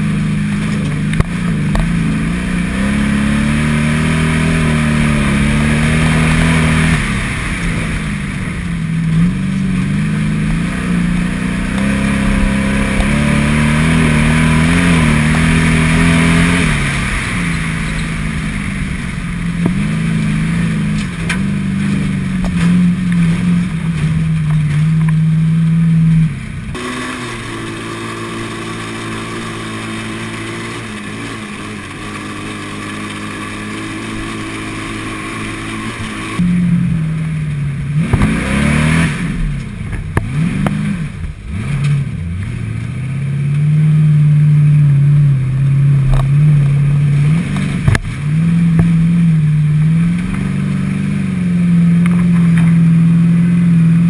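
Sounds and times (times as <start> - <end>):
race car engine revving: 0.0 - 54.0.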